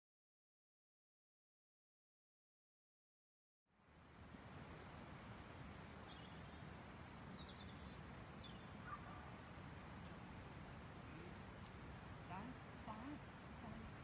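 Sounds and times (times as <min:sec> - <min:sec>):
faint high bird chirps: 0:05.1 - 0:09.3.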